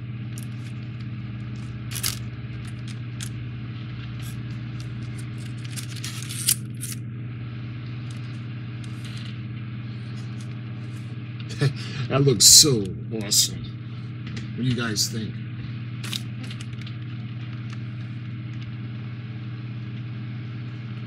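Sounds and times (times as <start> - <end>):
steady low hum: 0.0 - 21.0
clicks and scrapes of model parts: 4.2 - 7.0.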